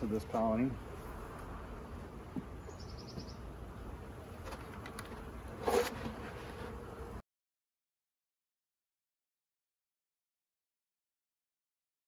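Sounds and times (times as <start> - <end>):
honeybees buzzing: 0.0 - 7.2.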